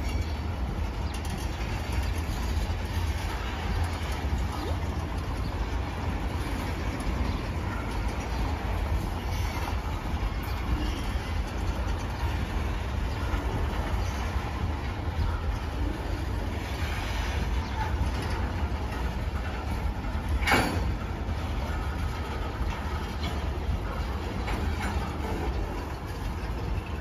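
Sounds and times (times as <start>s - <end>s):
train wheels on rails: 0.0s - 27.0s
sharp metal clank: 20.4s - 20.9s.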